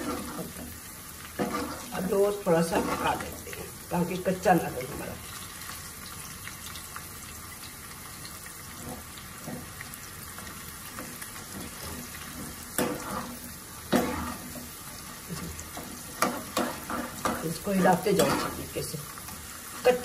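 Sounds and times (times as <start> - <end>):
corn deep-frying in oil: 0.0 - 20.0
skimmer scraping steel pan: 1.4 - 3.3.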